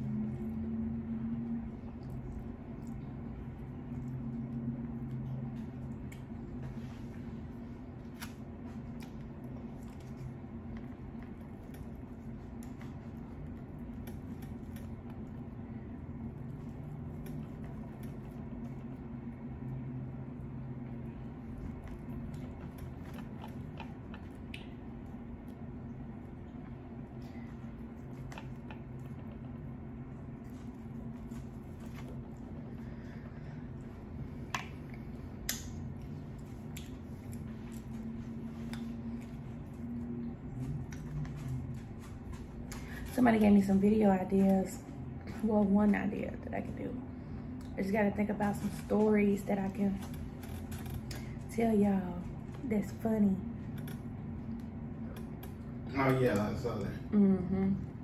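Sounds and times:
steady low hum: 0.0s - 58.0s
sharp clicks of eating: 1.9s - 6.6s, 8.0s - 19.6s, 21.0s - 29.8s, 34.4s - 38.0s, 38.6s - 43.5s.

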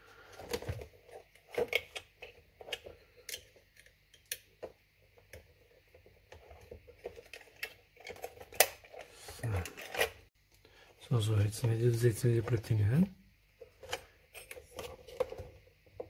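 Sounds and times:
hands clicking and tapping plastic parts: 0.3s - 10.6s.

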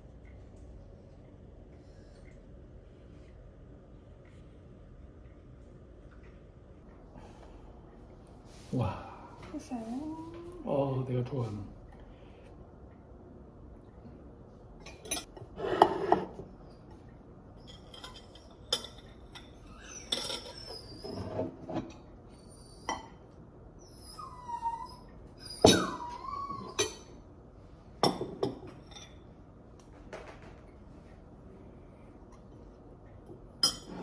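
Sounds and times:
forks clinking on plates: 17.6s - 20.6s, 33.6s - 34.0s
dog whining: 19.5s - 21.6s, 22.3s - 27.2s.

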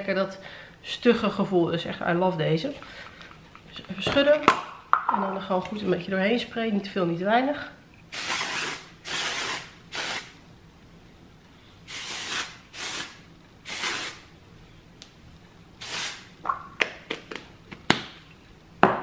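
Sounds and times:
aerosol spray hissing: 11.9s - 14.2s, 15.8s - 16.3s.

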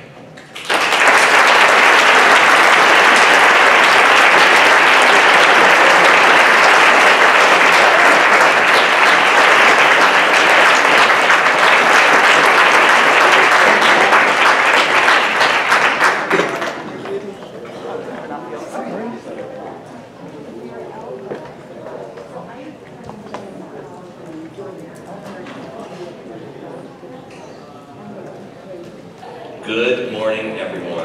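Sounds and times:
audience applauding: 0.4s - 17.4s.

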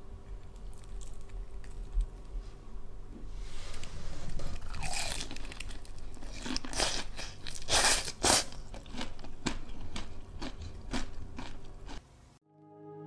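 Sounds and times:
chewing crispy fried chicken: 0.4s - 2.4s, 4.6s - 12.0s.

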